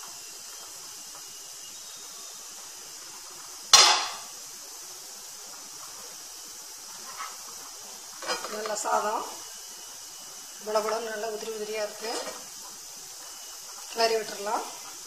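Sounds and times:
faint steady hiss: 0.0 - 15.0
metal pot lid clanking: 3.7 - 4.3
spatula scraping a pan: 6.9 - 8.9, 11.8 - 12.5.

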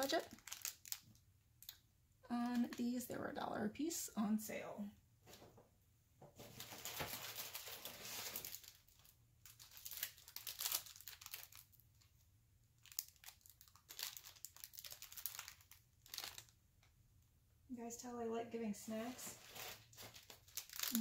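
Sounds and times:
plastic wrappers crinkling: 0.0 - 3.1, 6.4 - 17.0, 18.9 - 21.0.

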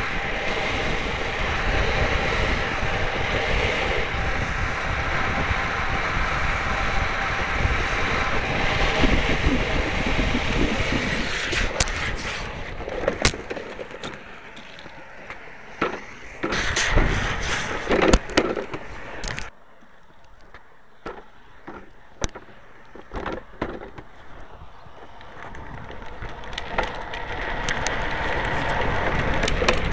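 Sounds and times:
wind rushing over microphone: 0.0 - 19.5, 22.0 - 29.9
trike wheels sliding on asphalt: 0.0 - 29.9
sharp clicks and knocks: 12.8 - 24.1, 25.2 - 29.9.

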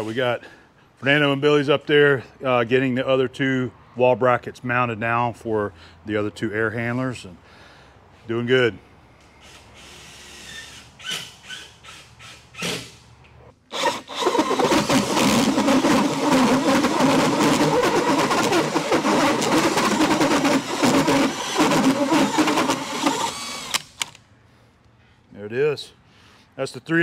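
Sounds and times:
drill cutting through wood: 13.7 - 24.0.

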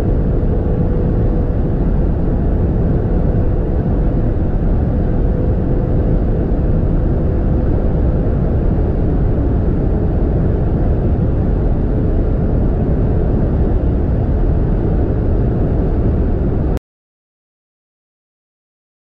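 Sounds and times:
wind and road noise: 0.0 - 16.8.

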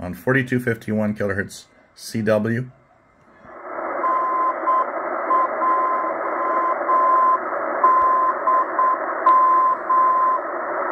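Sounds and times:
radio band hiss: 3.4 - 10.9
morse code beeps: 4.0 - 10.5.

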